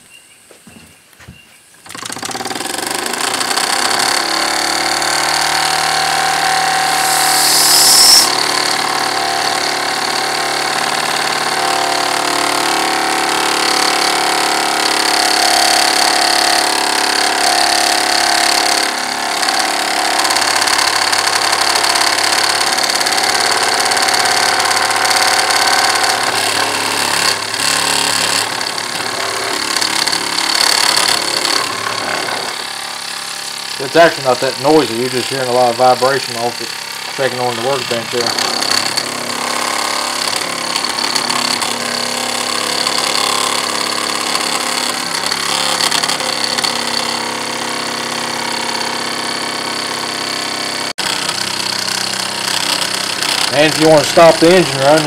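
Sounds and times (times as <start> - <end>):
engine vibrating against workbench: 1.8 - 55.0
model steam engine running: 1.8 - 55.0
short steam hiss: 7.0 - 8.3.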